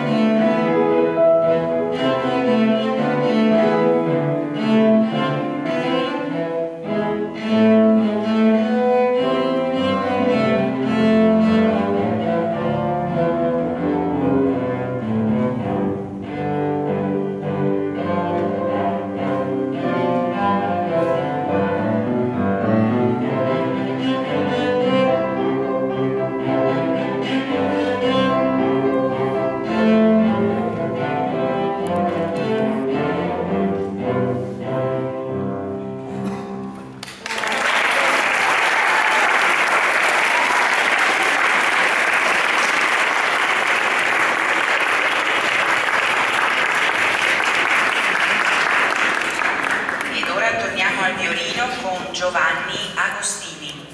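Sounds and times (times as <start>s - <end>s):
bowed cello: 0.0s - 37.0s
upright piano: 0.0s - 37.2s
audience applauding: 37.0s - 50.6s.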